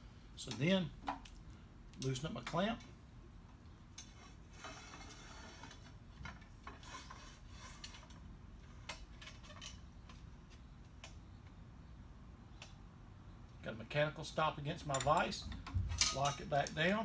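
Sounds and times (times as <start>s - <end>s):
metal tubing scraping: 4.0s - 6.0s, 6.6s - 10.1s.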